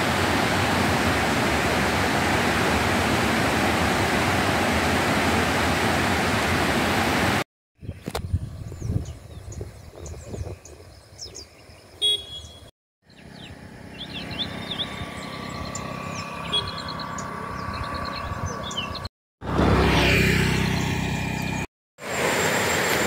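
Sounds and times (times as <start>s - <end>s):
vehicle engine and road hum: 13.0s - 23.0s.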